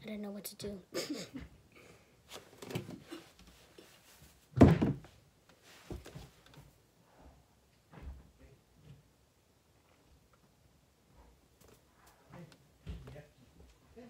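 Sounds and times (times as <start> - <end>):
rustling: 2.2 - 6.8
loud thump: 4.6 - 5.1.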